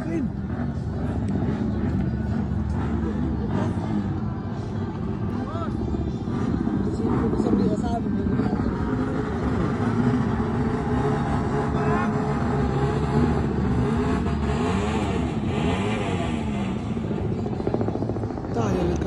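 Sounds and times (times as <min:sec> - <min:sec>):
motorcycle engines revving: 0:00.0 - 0:19.0.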